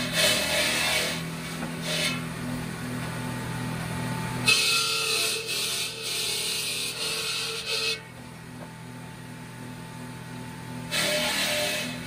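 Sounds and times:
circular stone saw cutting stone: 0.0 - 2.6, 4.2 - 8.2, 10.7 - 12.0.

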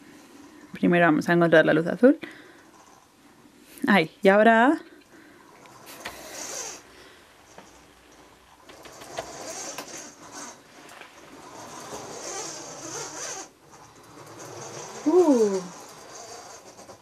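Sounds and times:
toy robot motors whirring: 2.6 - 3.1, 5.5 - 17.0.

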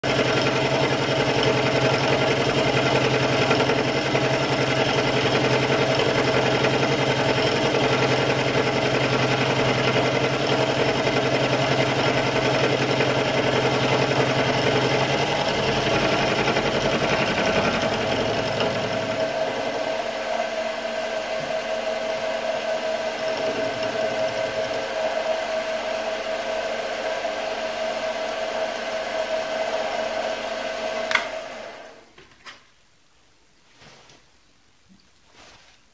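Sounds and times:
lathe motor whine: 0.0 - 32.0
milling cutter cutting metal: 3.1 - 26.7.

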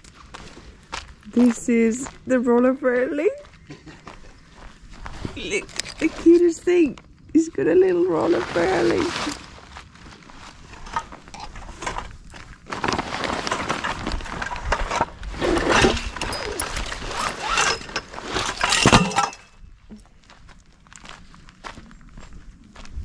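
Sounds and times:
footsteps on gravel: 0.0 - 15.6, 16.2 - 23.0
sail cloth rustling on gravel: 4.5 - 19.5.

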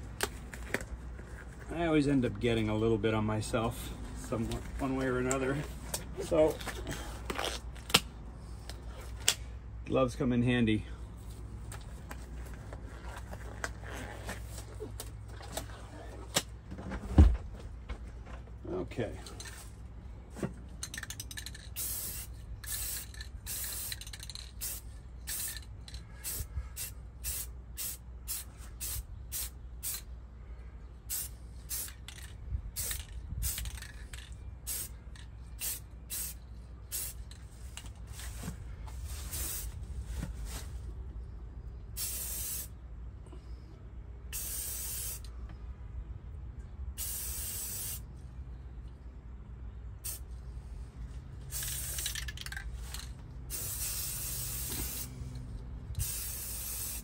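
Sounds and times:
spray can hissing bursts: 21.7 - 25.6, 26.2 - 30.0, 31.1 - 32.1, 34.7 - 34.9, 35.6 - 37.2, 39.3 - 39.7, 42.0 - 42.7, 44.3 - 45.3, 47.0 - 48.0, 50.0 - 50.2, 51.5 - 52.3, 52.9 - 55.2, 56.0 - 57.0.

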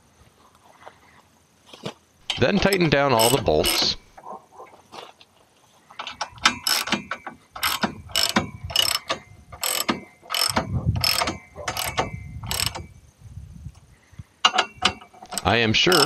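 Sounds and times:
hand ratchet clicking: 2.2 - 4.0, 6.0 - 12.9, 14.5 - 16.0.

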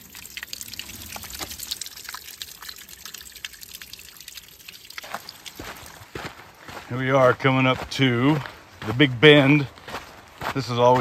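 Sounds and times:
water dripping onto wet ground: 0.0 - 6.6.

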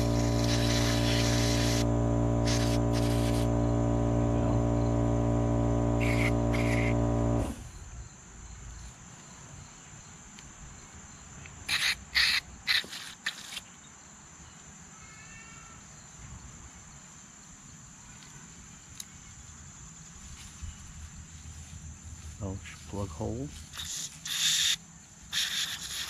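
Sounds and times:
aerosol spray hissing bursts: 0.0 - 7.6, 23.7 - 26.0
loud steady hum: 0.0 - 7.7
insect trill: 0.0 - 26.0.

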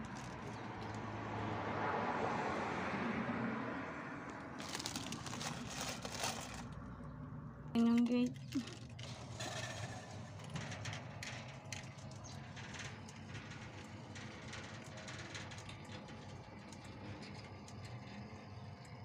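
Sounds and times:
light clicks and rattles: 7.7 - 19.0.

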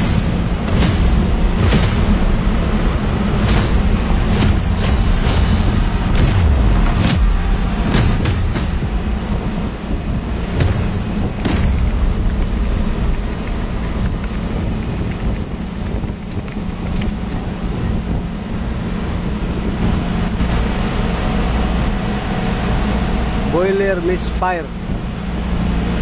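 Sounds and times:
engine-room machinery humming: 0.0 - 23.5
sharp clicks: 11.2 - 17.4.

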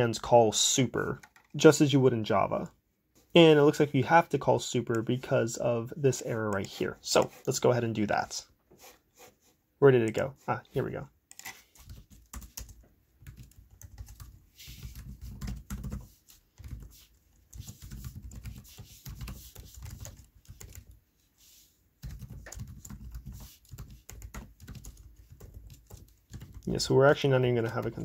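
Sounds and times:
typing on computer keyboard: 11.3 - 21.0, 22.0 - 26.8.

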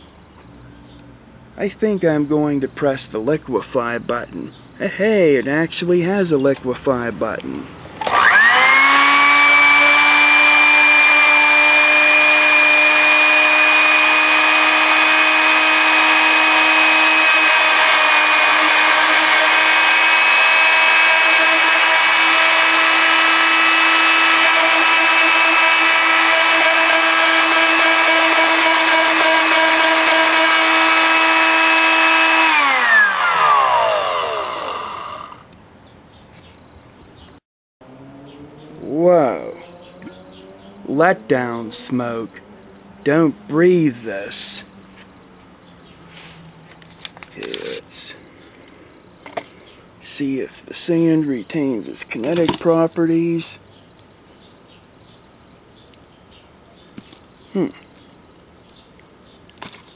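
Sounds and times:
blender motor whining: 8.0 - 35.5.

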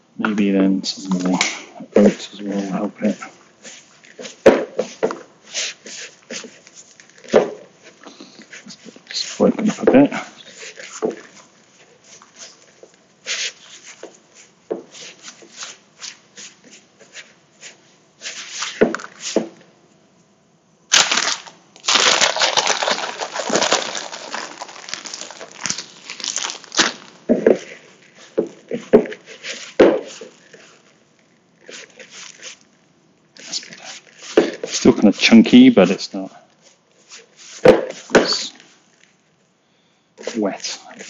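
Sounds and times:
hands rubbing mixture in bowl: 2.0 - 7.0, 8.5 - 9.8, 31.6 - 32.7, 33.4 - 38.7
plastic bag crinkling: 20.9 - 28.3, 29.2 - 32.8.

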